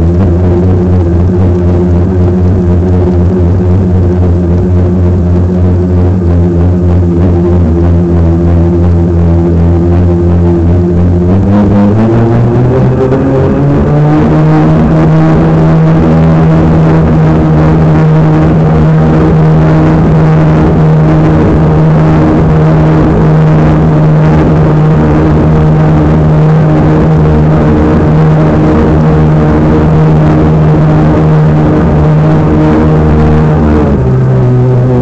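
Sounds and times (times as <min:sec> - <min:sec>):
model boat motor running: 0:00.0 - 0:35.0
water rushing over hull: 0:12.5 - 0:35.0.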